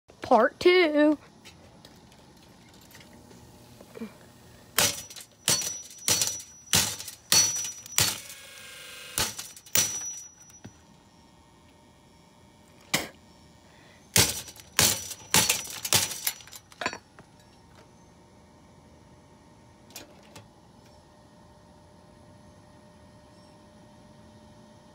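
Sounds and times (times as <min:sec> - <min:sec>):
metal box fan being struck: 0:04.8 - 0:10.8, 0:14.2 - 0:16.6.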